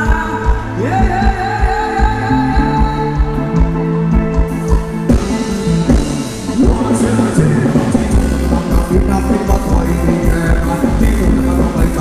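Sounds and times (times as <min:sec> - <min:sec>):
live band playing dance music: 0:00.0 - 0:12.0.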